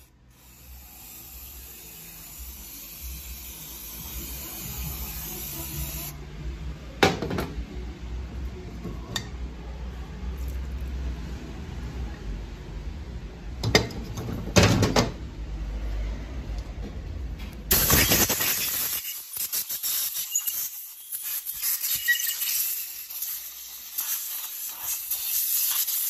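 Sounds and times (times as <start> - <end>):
compressed air blow gun hissing: 17.7 - 26.0.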